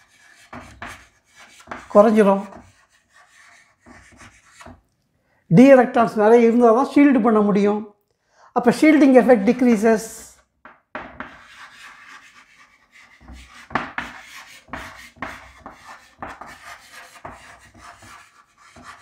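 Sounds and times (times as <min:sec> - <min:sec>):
handwriting scratchy strokes: 0:00.0 - 0:04.8, 0:11.1 - 0:19.0
writing tool tapping: 0:00.0 - 0:04.8, 0:10.6 - 0:19.0.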